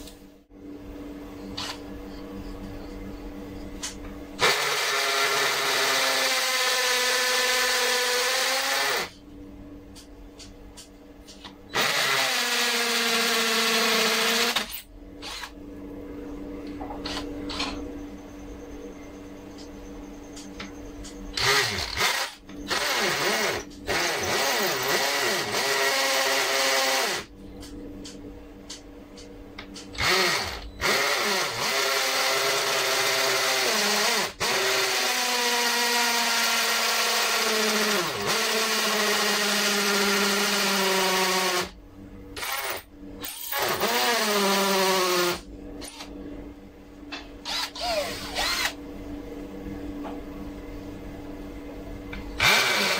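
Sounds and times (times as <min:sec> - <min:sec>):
drill boring into concrete: 0:04.4 - 0:09.1, 0:11.7 - 0:15.5, 0:21.4 - 0:27.3, 0:30.0 - 0:41.8, 0:42.4 - 0:45.4, 0:47.4 - 0:48.8, 0:52.4 - 0:52.9.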